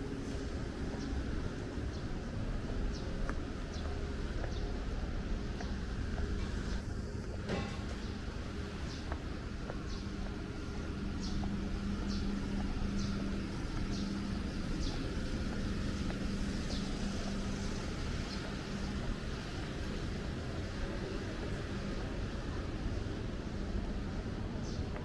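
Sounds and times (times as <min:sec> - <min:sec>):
low rumble with hum: 0:00.0 - 0:25.0.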